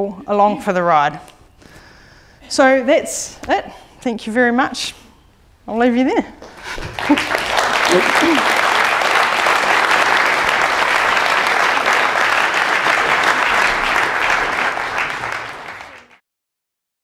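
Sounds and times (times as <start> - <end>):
audience applauding: 6.4 - 16.2.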